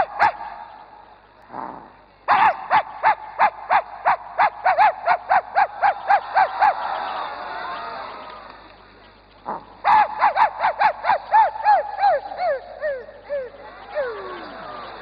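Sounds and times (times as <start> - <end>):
dog yapping barks: 0.0 - 0.5, 2.3 - 6.5, 9.8 - 13.0.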